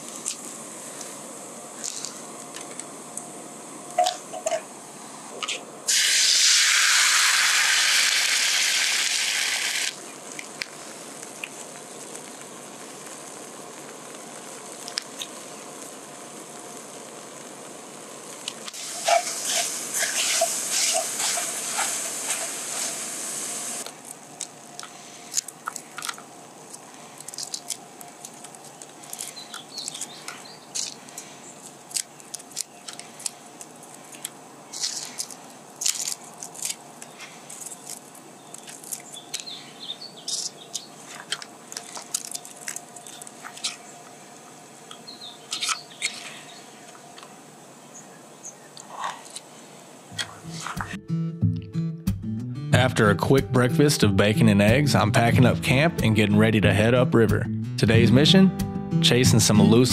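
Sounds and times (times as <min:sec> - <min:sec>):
small crackles and ticks: 0:01.8 - 0:03.3, 0:09.8 - 0:22.4, 0:23.8 - 0:47.4
egg sizzling in a frying pan: 0:05.9 - 0:31.0.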